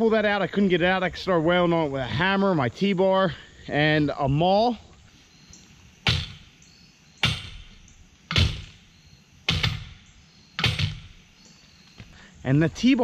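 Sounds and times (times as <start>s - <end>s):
hammer clanking on steel bar: 6.0s - 6.6s, 7.2s - 8.8s, 9.5s - 11.2s.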